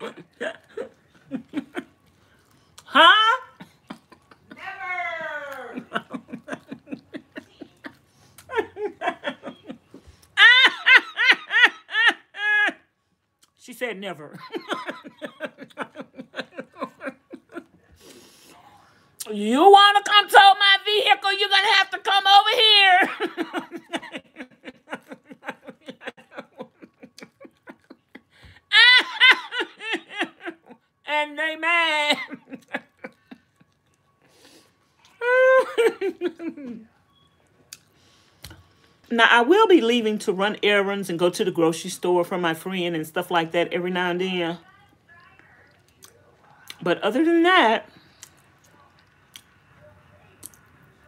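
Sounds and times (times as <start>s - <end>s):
woman laughing: 2.9s - 12.8s, 14.3s - 17.8s, 22.6s - 33.7s, 35.2s - 36.9s.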